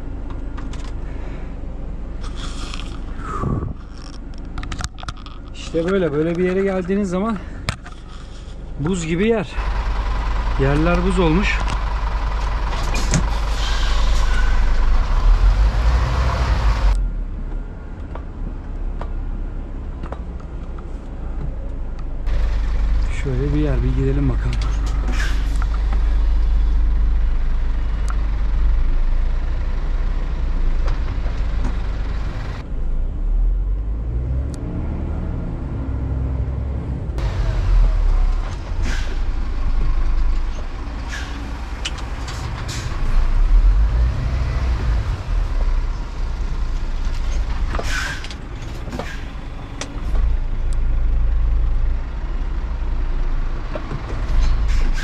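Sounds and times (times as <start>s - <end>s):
diesel truck engine revving: 9.3s - 17.3s, 22.3s - 55.0s.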